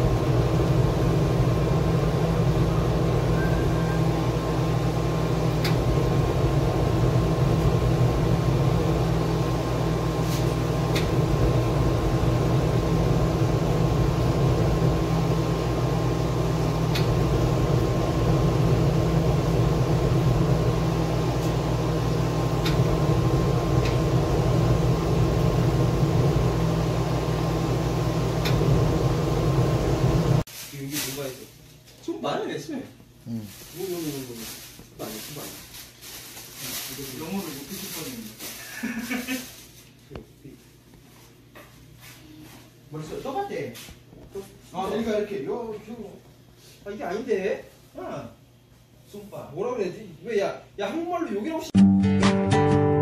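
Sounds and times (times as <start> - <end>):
machine humming with tones: 0.0 - 30.4.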